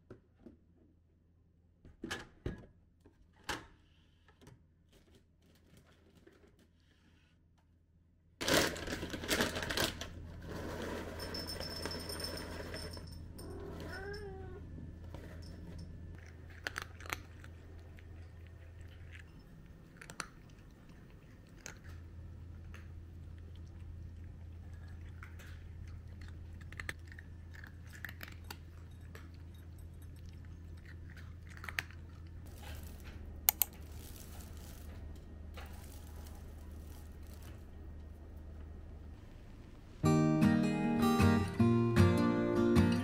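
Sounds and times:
rustling and clatter of dry cat food: 4.9 - 7.2, 8.4 - 38.6
cat meowing: 13.5 - 14.7.

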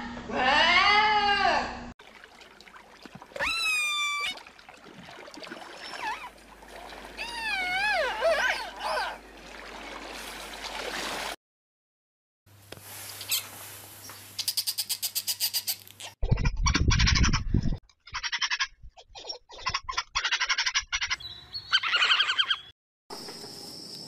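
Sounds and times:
killer whale calls: 3.4 - 4.5, 7.0 - 9.2.

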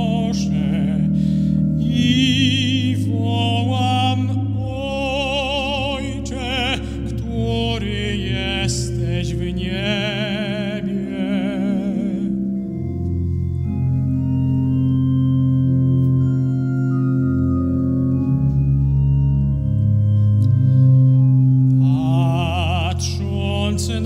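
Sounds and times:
tenor singing with vibrato: 0.0 - 12.6
pipe organ chords: 0.0 - 24.0.

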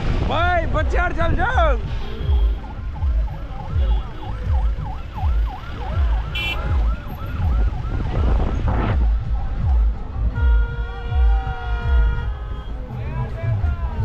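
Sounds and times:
low vehicle rumble: 0.0 - 14.0
fast yelping siren: 2.4 - 8.6.

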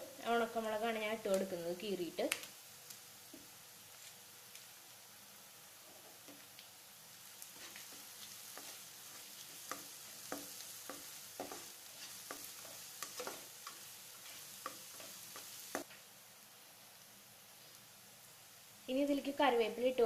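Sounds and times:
food sizzling in oil: 0.0 - 20.0
spatula scraping and knocking pan: 7.6 - 15.9.

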